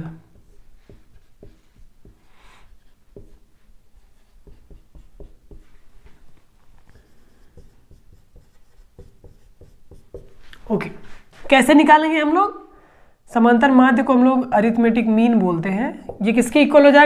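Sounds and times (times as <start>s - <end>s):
marker pen writing on whiteboard: 0.2s - 10.7s, 15.4s - 17.0s.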